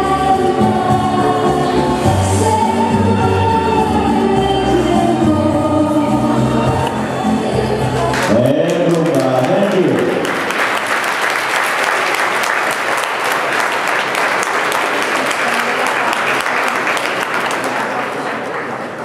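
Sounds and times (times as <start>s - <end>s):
dance music: 0.0s - 10.2s
audience applauding: 8.1s - 19.0s.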